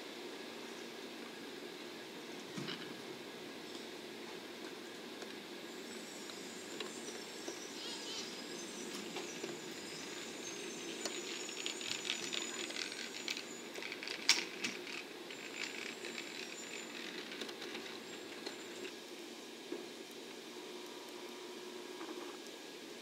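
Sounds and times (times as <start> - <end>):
faint high wheel squeal: 5.7 - 18.9
train wheels clicking on track: 8.9 - 18.9.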